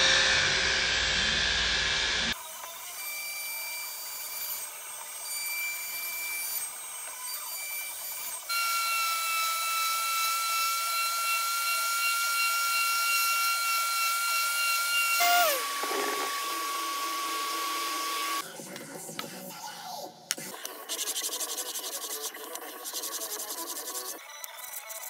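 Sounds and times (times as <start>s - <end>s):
orbital sander whining: 5.8s - 18.4s.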